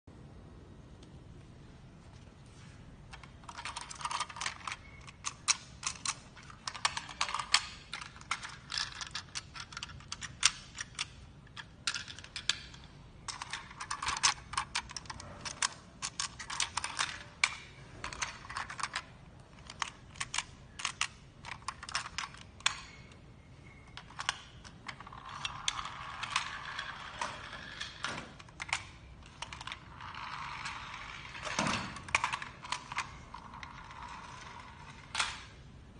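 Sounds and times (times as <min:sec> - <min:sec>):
toy cars clicking and rattling: 0:03.2 - 0:23.2, 0:23.9 - 0:35.5.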